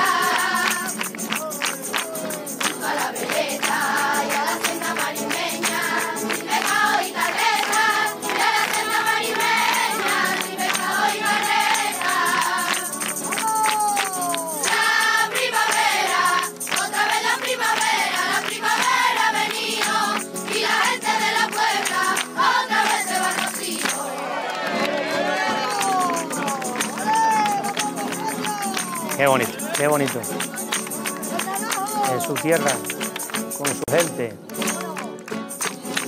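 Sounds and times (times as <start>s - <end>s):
children singing: 0.0s - 1.0s, 2.1s - 26.8s
tambourine jingling: 0.0s - 24.2s, 25.4s - 36.0s
hands clapping: 0.0s - 36.0s.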